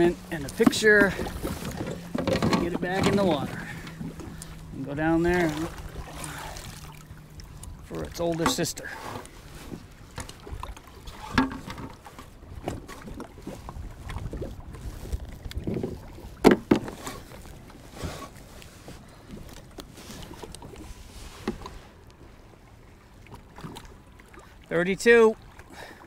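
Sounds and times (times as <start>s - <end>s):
knocks and thumps on a kayak: 0.0s - 6.9s, 7.6s - 19.6s, 20.2s - 21.8s
small waves: 0.0s - 26.0s
wind: 0.0s - 26.0s.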